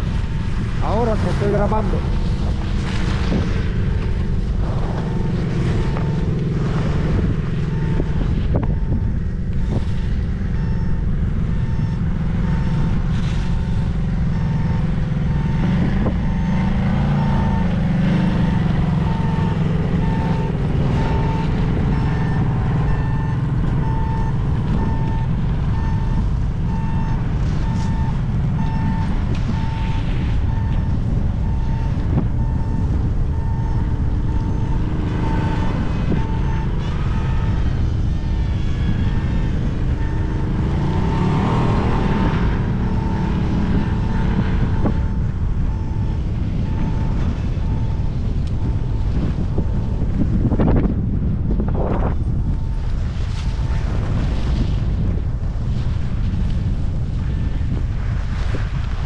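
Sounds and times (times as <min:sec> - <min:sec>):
wind rushing over microphone: 0:00.0 - 0:59.0
electronic beep: 0:05.0 - 0:37.6, 0:39.8 - 0:48.9
skis scraping snow: 0:53.1 - 0:54.8.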